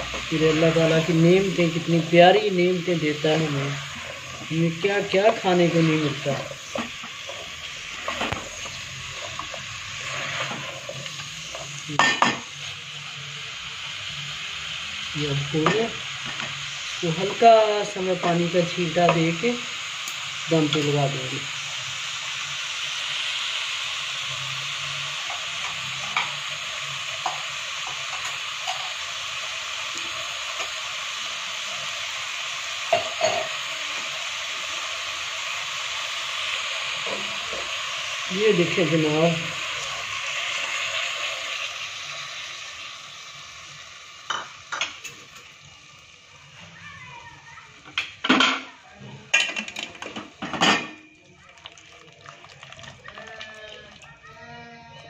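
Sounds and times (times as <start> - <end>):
food sizzling in a pot: 0.0 - 55.0
wooden spatula scraping pot: 5.3 - 11.7
water splashing into pot: 49.3 - 54.2.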